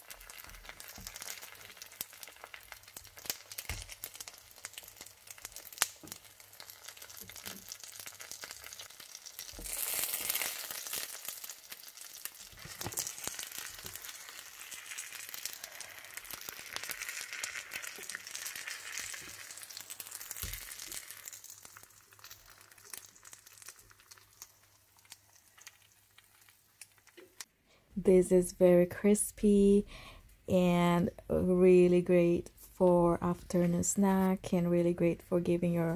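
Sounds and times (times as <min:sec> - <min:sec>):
oil sizzling and crackling in pan: 0:00.0 - 0:27.5.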